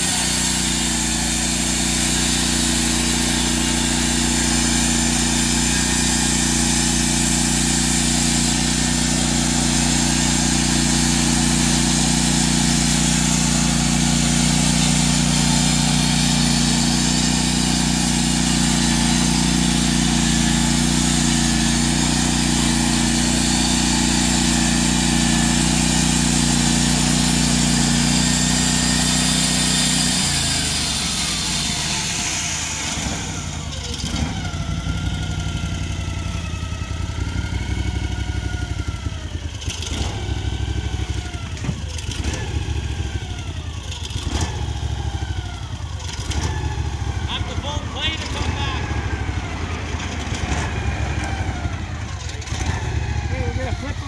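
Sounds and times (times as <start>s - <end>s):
band blade sawing log: 0.0s - 33.6s
saw carriage clanking: 0.0s - 35.6s
bandsaw mill engine running: 0.0s - 54.0s.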